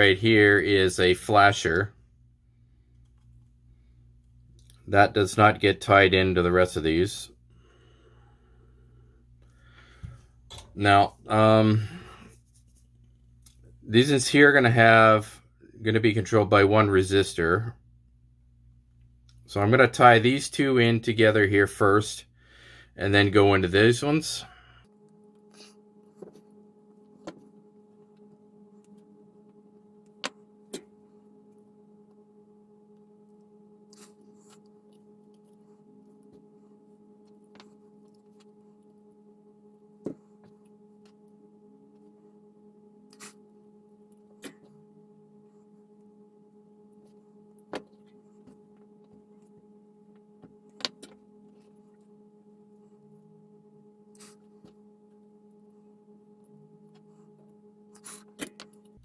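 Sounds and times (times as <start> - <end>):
faint electrical hum: 0.0 - 59.0
clicks of wires being handled: 57.9 - 59.0.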